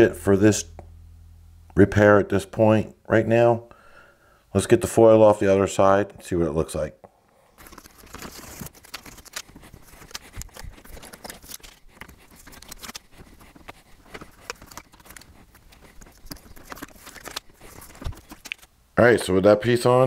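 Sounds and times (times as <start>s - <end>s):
aluminum foil crinkling: 7.6s - 18.7s.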